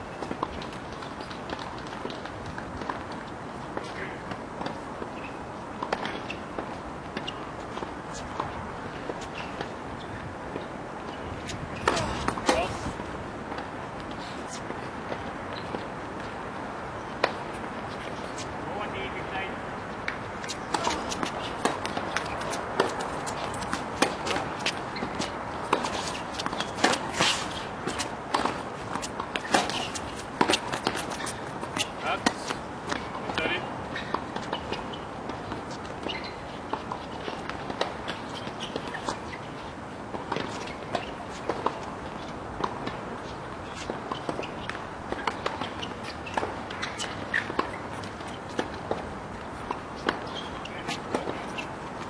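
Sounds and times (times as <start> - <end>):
players' footsteps: 0.0 - 52.0
steady background hiss: 0.0 - 52.0
tennis ball hitting racquets: 11.8 - 12.8, 20.0 - 39.4, 43.7 - 52.0.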